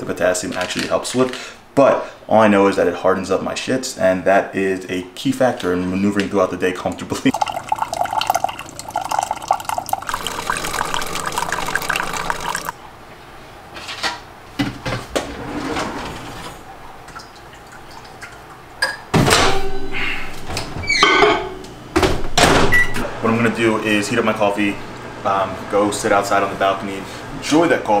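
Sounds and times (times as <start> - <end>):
coffee pouring into a mug: 7.3 - 12.8.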